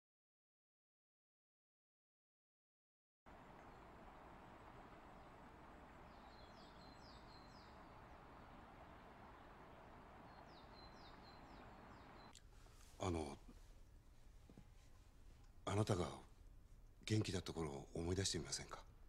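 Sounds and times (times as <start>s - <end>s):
steady hiss: 3.3s - 16.4s
small bird chirping: 3.5s - 12.4s.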